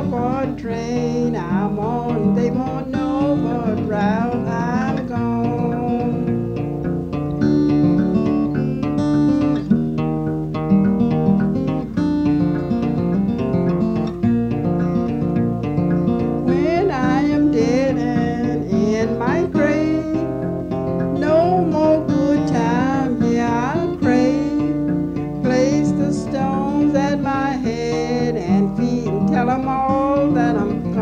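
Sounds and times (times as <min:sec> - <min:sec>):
person singing: 0:00.0 - 0:06.8, 0:16.2 - 0:31.0
fingerpicked acoustic guitar: 0:00.0 - 0:31.0.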